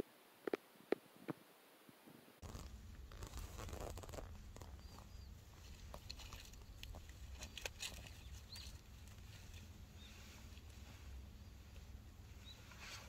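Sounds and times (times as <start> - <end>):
leaves rustling: 2.4 - 13.0
faint bird chirps: 4.6 - 13.0.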